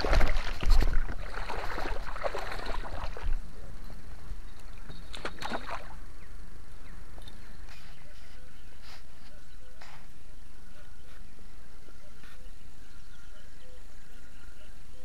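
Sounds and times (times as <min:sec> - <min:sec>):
water sloshing and splashing: 0:00.0 - 0:04.0, 0:04.6 - 0:06.0.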